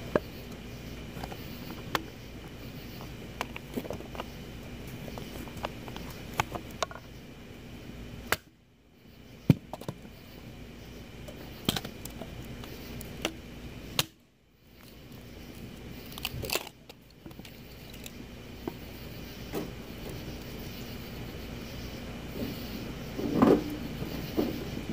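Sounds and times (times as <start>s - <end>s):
steady background hiss: 0.0s - 24.9s
wood fire crackling and popping: 15.0s - 18.2s.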